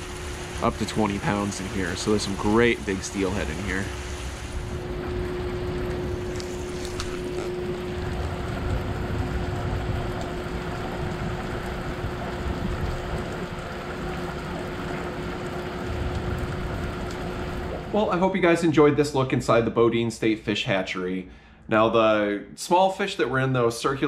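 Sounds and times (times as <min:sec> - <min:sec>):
low hum: 0:00.0 - 0:18.6
rushing water: 0:00.0 - 0:18.8
wind buffeting microphone: 0:04.6 - 0:13.8.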